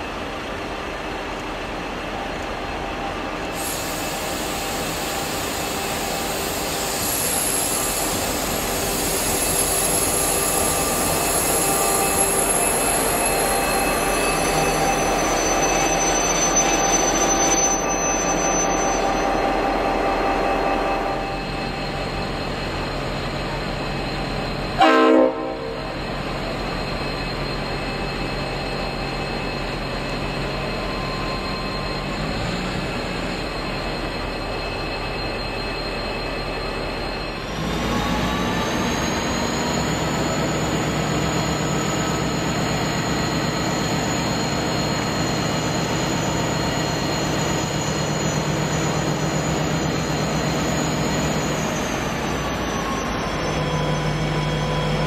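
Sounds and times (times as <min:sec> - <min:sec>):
diesel locomotive engine: 0:00.0 - 0:55.0.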